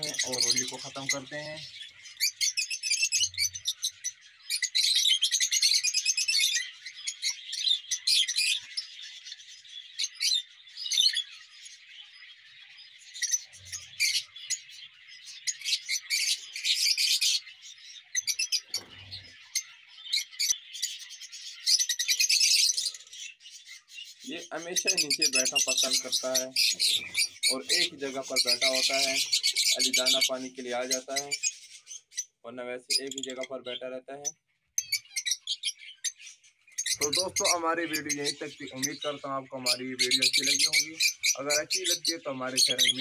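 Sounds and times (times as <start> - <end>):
birds chirping and chattering: 0.0 - 43.0.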